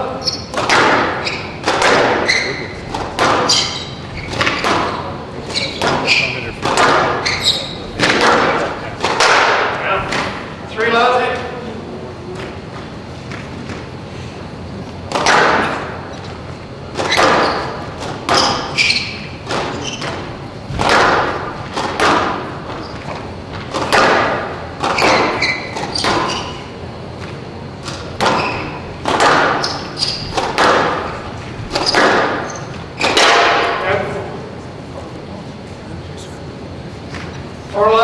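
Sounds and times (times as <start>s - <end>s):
squash ball hits echoing: 0.0s - 10.6s, 15.0s - 34.0s.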